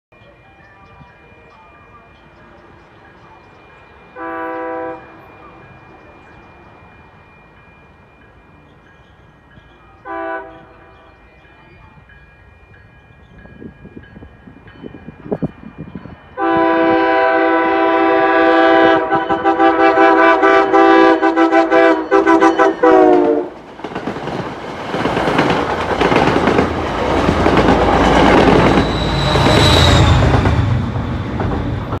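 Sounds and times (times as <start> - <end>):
train air horn blasts: 4.2 - 5.8, 10.0 - 11.1, 16.4 - 23.6
train wheels clattering on rails: 21.9 - 32.0.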